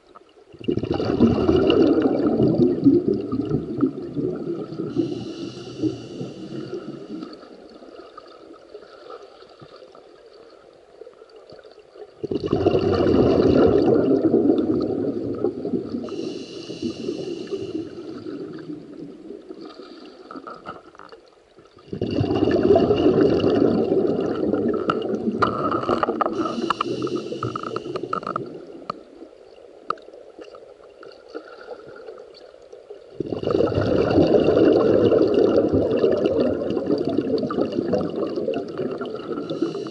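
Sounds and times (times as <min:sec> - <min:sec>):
exhaled bubbles gurgling underwater: 0:00.0 - 0:39.9
quiet hissing: 0:03.1 - 0:12.2, 0:14.6 - 0:21.8, 0:23.9 - 0:33.1, 0:38.3 - 0:39.9.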